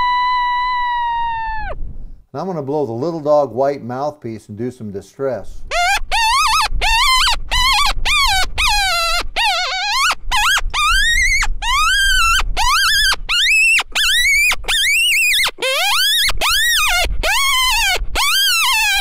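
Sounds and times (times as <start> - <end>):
predator call distress cries: 5.7 - 19.0.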